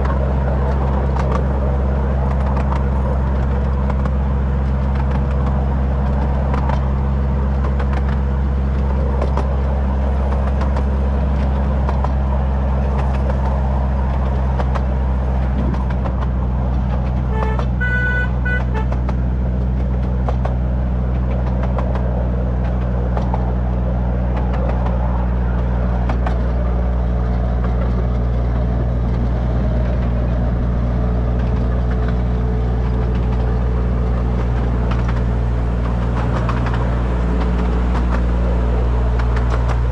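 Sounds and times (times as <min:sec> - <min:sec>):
light train clicks: 0:00.0 - 0:39.9
locomotive engine droning: 0:00.0 - 0:39.9
train horn toot: 0:17.3 - 0:19.2.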